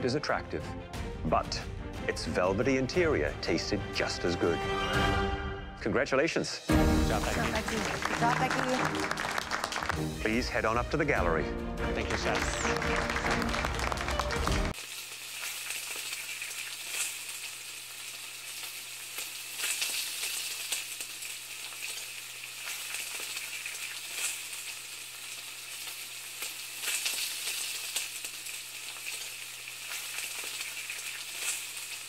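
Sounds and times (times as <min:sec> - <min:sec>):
food sizzling in hot pan: 0:14.7 - 0:32.0.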